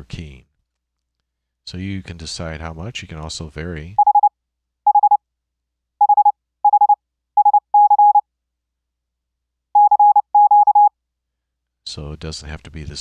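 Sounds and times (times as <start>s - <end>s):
morse code sine tone: 4.0s - 4.3s, 4.9s - 5.2s, 6.0s - 8.2s, 9.8s - 10.9s.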